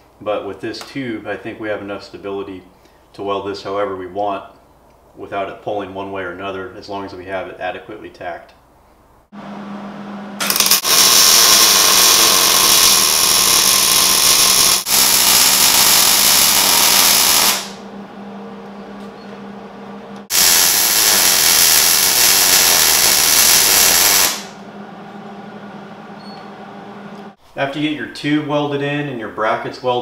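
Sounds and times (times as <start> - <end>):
welder arc crackling: 10.4 - 17.9, 20.2 - 24.6
low steady hum: 17.8 - 20.3, 24.6 - 27.4.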